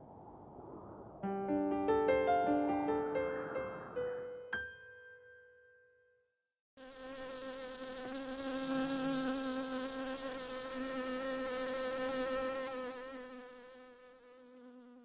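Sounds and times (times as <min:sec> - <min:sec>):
bee buzzing: 0:06.8 - 0:15.0.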